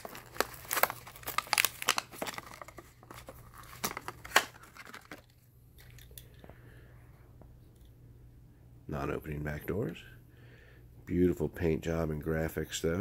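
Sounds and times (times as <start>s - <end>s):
cardboard tearing: 0.0s - 5.2s
plastic packaging crinkling: 0.0s - 6.3s.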